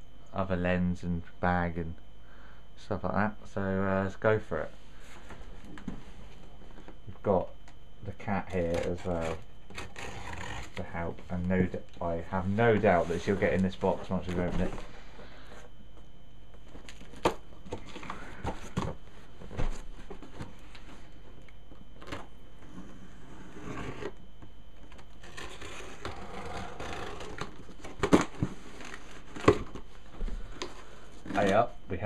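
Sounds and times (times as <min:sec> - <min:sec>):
packing tape slit and pulled: 0:08.7 - 0:10.8
cardboard rustling: 0:12.4 - 0:15.7, 0:16.6 - 0:21.4.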